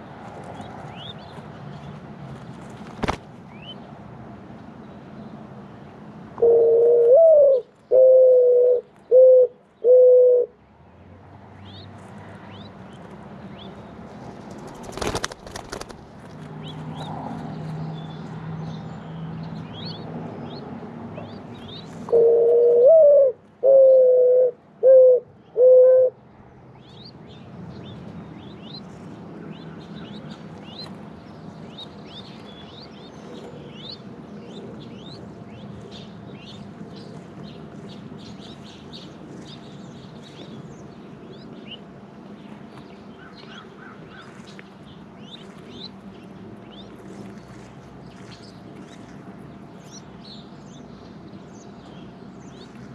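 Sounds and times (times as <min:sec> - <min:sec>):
wings fluttering: 0:02.3 - 0:03.3, 0:14.2 - 0:16.6
mourning dove cooing: 0:06.4 - 0:10.6, 0:22.0 - 0:26.2.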